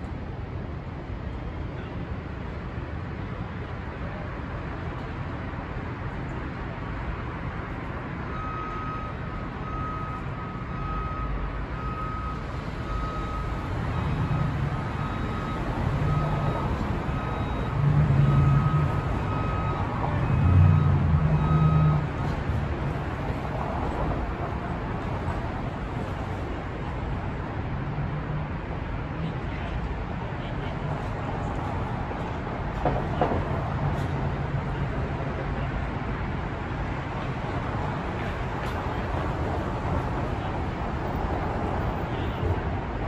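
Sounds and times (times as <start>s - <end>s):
heavy vehicle engine: 0.0s - 43.0s
street traffic hum: 0.0s - 43.0s
reversing alarm beeping: 8.3s - 22.3s.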